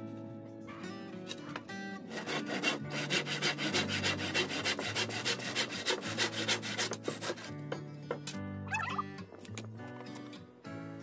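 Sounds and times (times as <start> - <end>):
handsaw cutting wood: 2.1 - 7.6.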